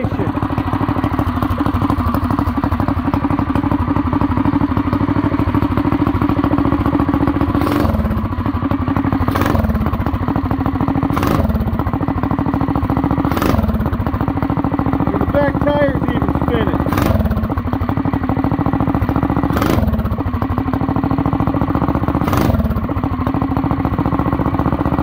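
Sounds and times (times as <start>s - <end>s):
small engine idling: 0.0s - 25.0s.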